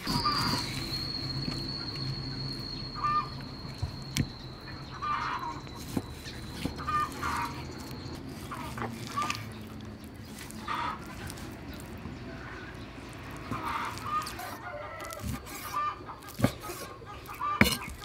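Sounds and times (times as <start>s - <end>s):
steady high-pitched whine: 0.0s - 8.2s
chickens clucking: 15.6s - 18.0s
cleaver chopping on wooden block: 17.6s - 18.0s.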